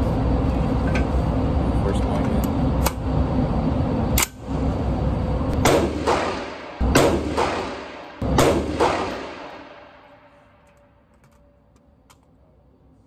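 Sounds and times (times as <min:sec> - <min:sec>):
gunshot echo: 0:05.6 - 0:10.3
rifle gunshots indoors: 0:05.6 - 0:10.4.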